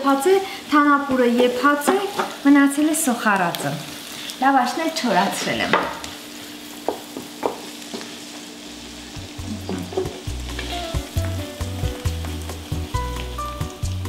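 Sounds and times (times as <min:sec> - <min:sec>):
onions sizzling in frying pan: 0:00.0 - 0:14.0
background music with bass: 0:09.2 - 0:14.0.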